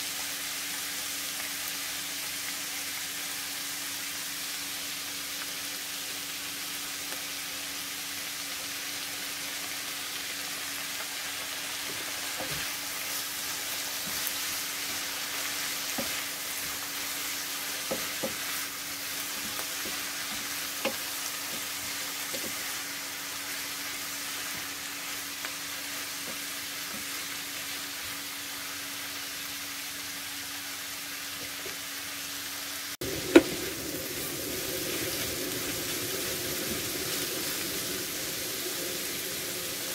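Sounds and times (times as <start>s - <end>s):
vegetables sizzling in frying pan: 0.0s - 39.9s
steady low hum: 33.0s - 39.9s.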